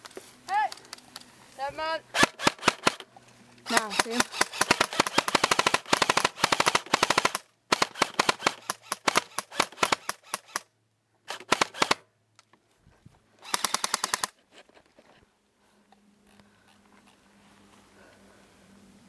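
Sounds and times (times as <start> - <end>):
airsoft gun firing bursts: 2.1 - 3.1, 3.7 - 10.7, 11.3 - 12.0, 13.4 - 14.4.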